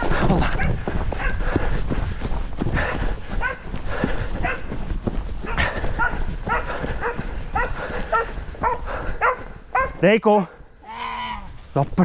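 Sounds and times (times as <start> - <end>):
dog barking and yelping: 3.4 - 3.7, 4.4 - 4.7, 5.4 - 10.1.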